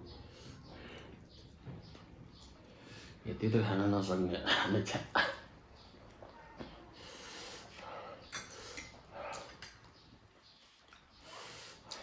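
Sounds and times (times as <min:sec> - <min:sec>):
soft mouth and eating noises: 0:05.7 - 0:12.0.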